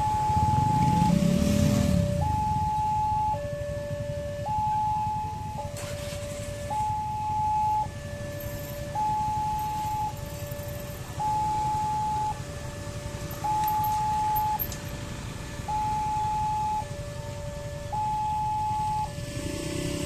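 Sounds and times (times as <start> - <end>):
level crossing alarm two-tone: 0.0 - 3.5, 4.1 - 12.4, 13.2 - 14.8, 15.7 - 16.9, 17.9 - 19.2
rumble of motorcycles and traffic: 0.0 - 20.0.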